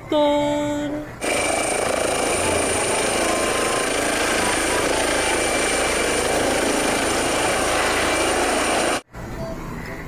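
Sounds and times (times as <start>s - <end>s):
toy helicopter clatter and whine: 1.2s - 9.0s.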